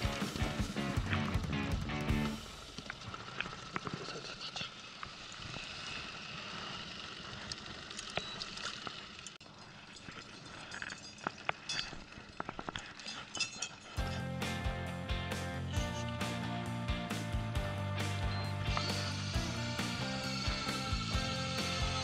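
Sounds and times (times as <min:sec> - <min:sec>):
music: 0:00.0 - 0:02.6, 0:14.0 - 0:22.0
hiss of water: 0:02.7 - 0:08.0.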